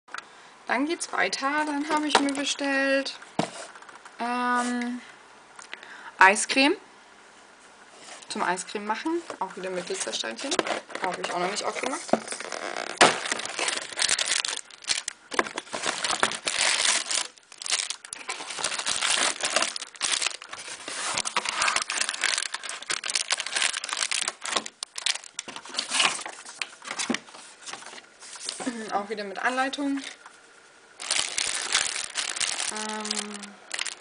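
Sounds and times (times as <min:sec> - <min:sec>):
plastic bag crinkling: 0:01.6 - 0:02.8, 0:09.2 - 0:29.0, 0:31.0 - 0:34.0.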